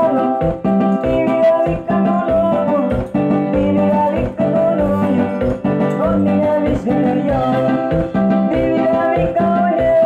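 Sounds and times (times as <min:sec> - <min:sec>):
repeating bass beat: 0:00.0 - 0:10.0.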